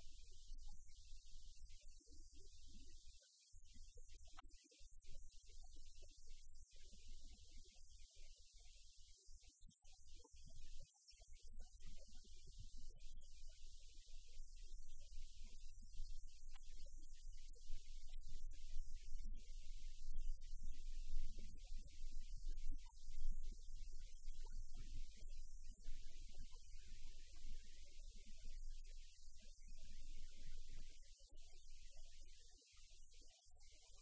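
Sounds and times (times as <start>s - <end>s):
faint hiss: 0.0s - 34.0s.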